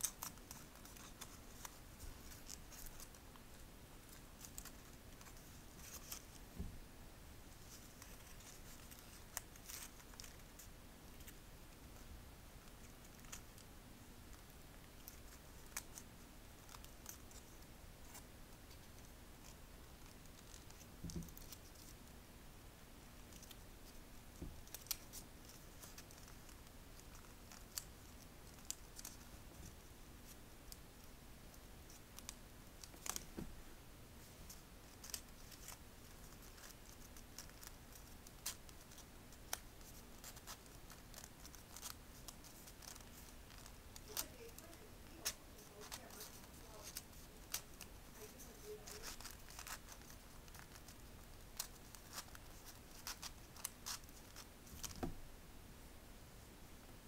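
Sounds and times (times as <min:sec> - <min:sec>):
paper creasing crackles: 0:34.2 - 0:55.1.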